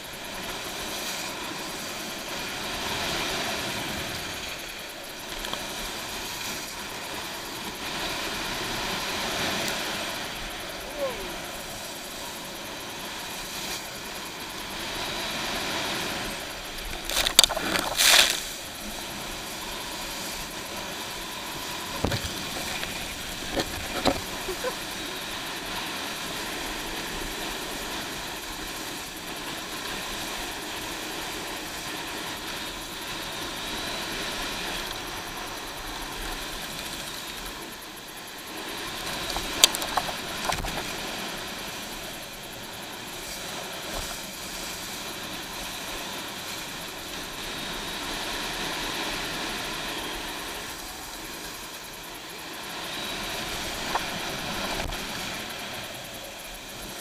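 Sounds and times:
water spray: 0:17.0 - 0:18.8.

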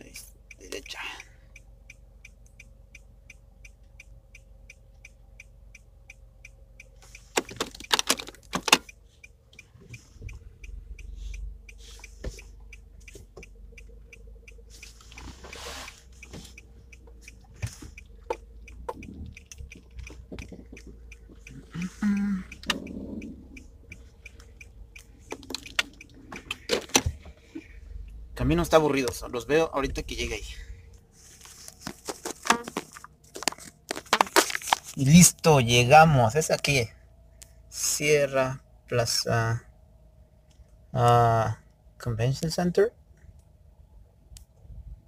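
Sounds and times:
turn signal ticking: 0:00.0 - 0:45.0
car rumble pulling away: 0:07.0 - 0:31.6.

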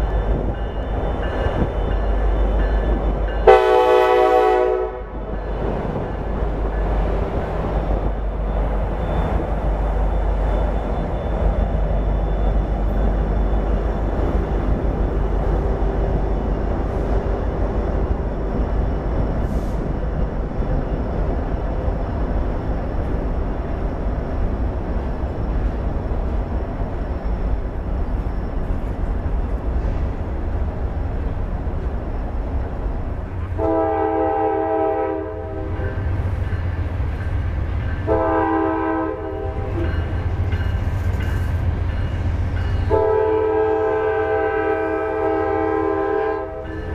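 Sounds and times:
freight train wheels rumbling on rail: 0:00.0 - 0:46.9
train horn chord: 0:03.4 - 0:05.2, 0:33.6 - 0:36.0, 0:38.0 - 0:39.9, 0:42.9 - 0:46.9.

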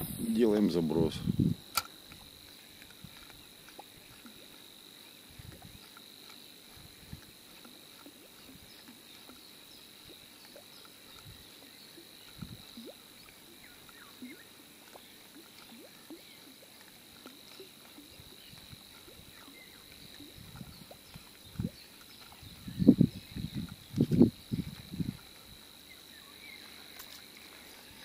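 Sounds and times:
high-pitched insect drone: 0:00.0 - 0:06.1
faint chirps: 0:07.9 - 0:24.5.

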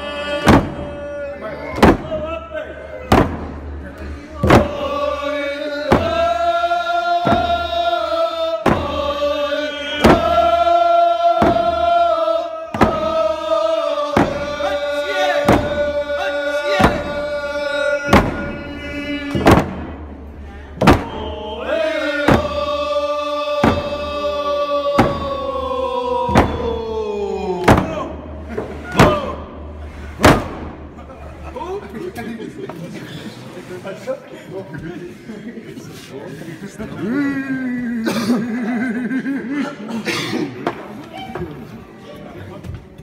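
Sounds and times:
group of voices singing in unison: 0:00.0 - 0:02.0, 0:04.0 - 0:30.4.

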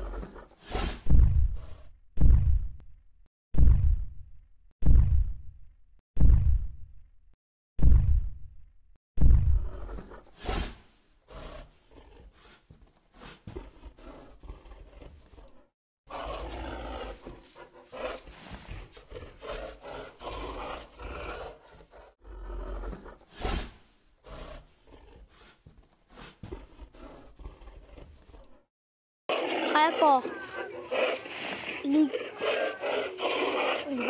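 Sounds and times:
dinosaur roars and growls: 0:00.0 - 0:01.9, 0:09.4 - 0:12.6, 0:13.2 - 0:28.6, 0:29.3 - 0:34.0.

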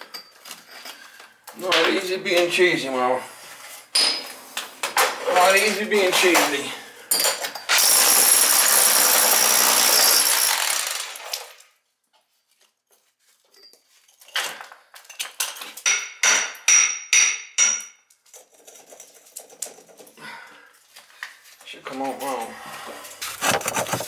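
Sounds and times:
power tool running: 0:07.8 - 0:11.6
hammer striking metal: 0:15.9 - 0:18.0.

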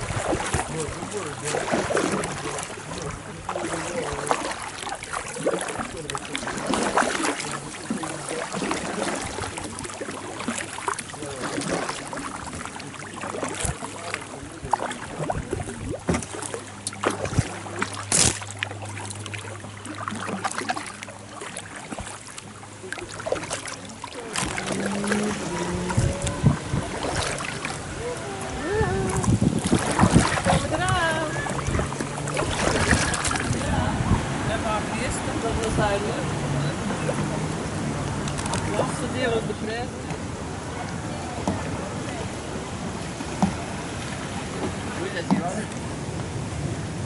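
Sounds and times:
water dripping off paddle: 0:00.0 - 0:34.3
paddle splashing through water: 0:00.0 - 0:47.0.

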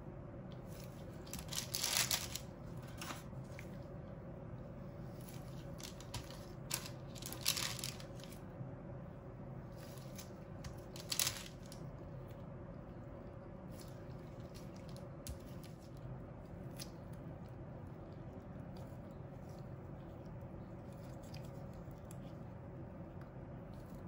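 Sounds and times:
low steady hum: 0:00.0 - 0:24.0
paper and gloves rustling: 0:00.6 - 0:03.8, 0:04.8 - 0:08.4, 0:09.7 - 0:11.8.

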